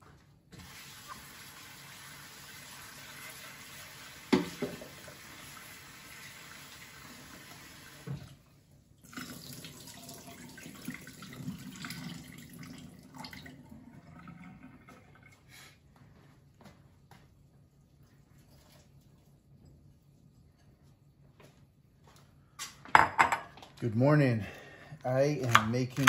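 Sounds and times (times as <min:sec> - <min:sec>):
tap water running into sink: 0:00.6 - 0:08.4, 0:09.0 - 0:15.3.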